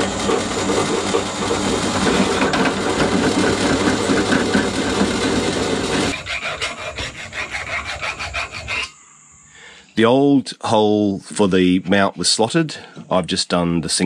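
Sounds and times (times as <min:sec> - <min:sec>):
drill press drilling steel: 0:00.0 - 0:06.6
metal scraping strokes: 0:00.0 - 0:09.0.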